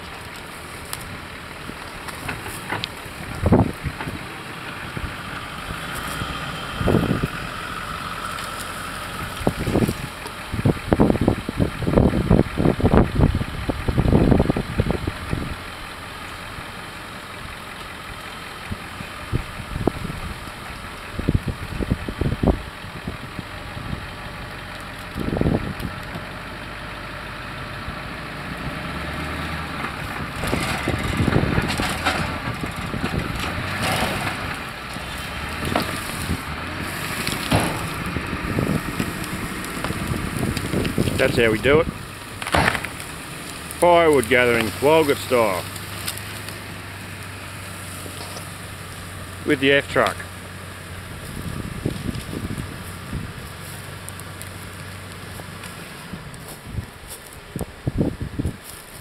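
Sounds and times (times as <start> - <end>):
rough crackling noise: 0.0 - 26.3, 28.5 - 59.0
pickup engine idling: 0.0 - 59.0
low thumps: 35.6 - 43.2.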